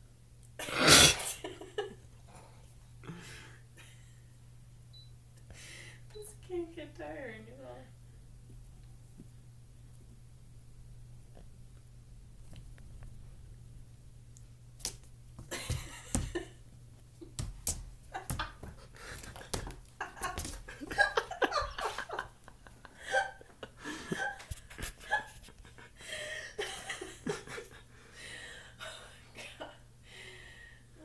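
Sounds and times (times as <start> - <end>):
person laughing: 1.2 - 2.0, 15.5 - 16.6, 18.1 - 27.8
person breathing: 2.3 - 3.7, 5.5 - 6.1, 18.8 - 19.5, 22.9 - 24.2, 25.9 - 26.6, 27.9 - 29.2, 30.0 - 31.0
kitten paws tapping a wall: 14.8 - 22.6.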